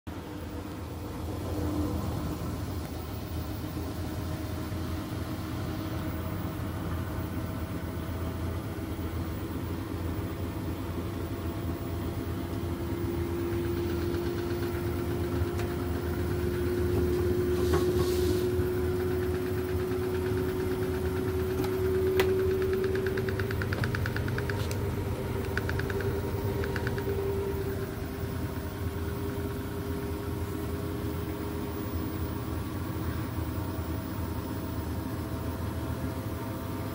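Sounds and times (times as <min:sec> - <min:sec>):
washing machine hum and whine: 0:00.1 - 0:36.9
sharp clicks or knocks: 0:21.5 - 0:24.8.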